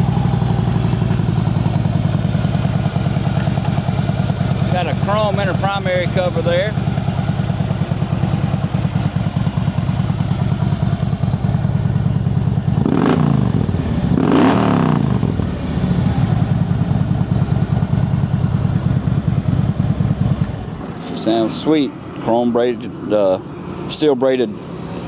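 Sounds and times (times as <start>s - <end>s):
motorcycle engine idling and revving: 0.0s - 25.0s.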